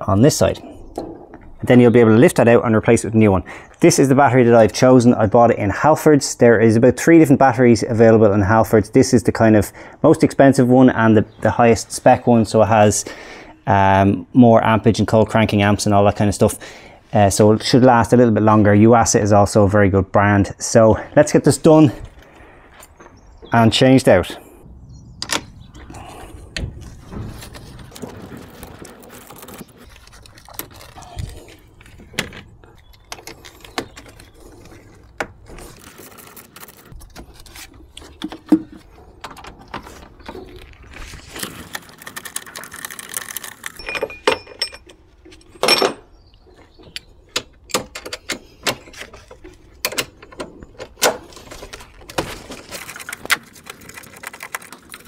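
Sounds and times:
metal tools clinking: 0:43.8 - 0:46.1.

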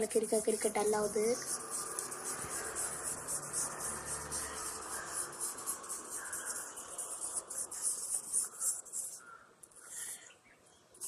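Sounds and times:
felt-tip pen scribbling on paper: 0:00.0 - 0:09.2.

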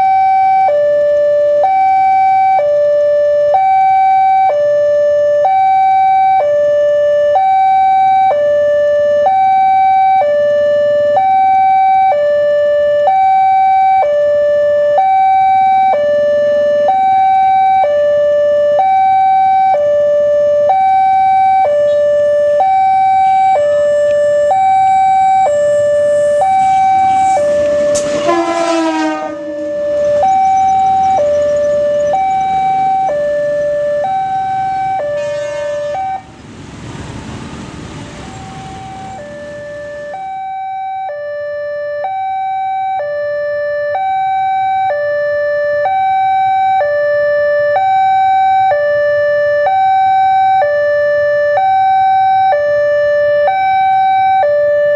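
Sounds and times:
level-crossing two-tone alarm: 0:00.0 - 0:36.4, 0:38.2 - 0:54.9
brief falling-pitch sound: 0:25.7 - 0:33.1.

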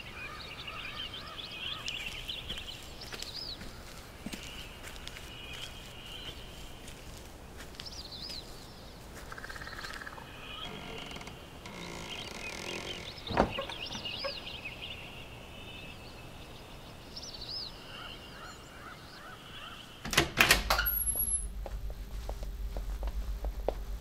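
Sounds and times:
small birds chirping: 0:00.0 - 0:20.1
steady low hum: 0:20.8 - 0:24.0.

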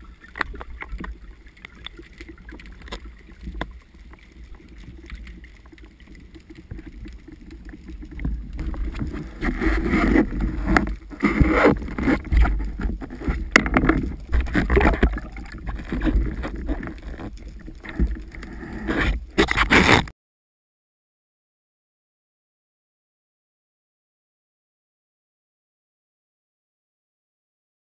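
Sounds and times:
water sloshing and splashing: 0:00.0 - 0:20.1.

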